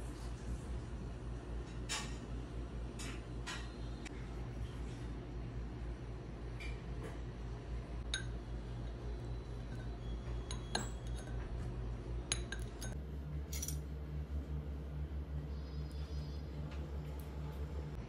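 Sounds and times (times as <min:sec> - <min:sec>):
steady low hum: 0:00.0 - 0:18.0
cutlery clinking on ceramic bowl: 0:09.7 - 0:11.6, 0:12.3 - 0:13.0.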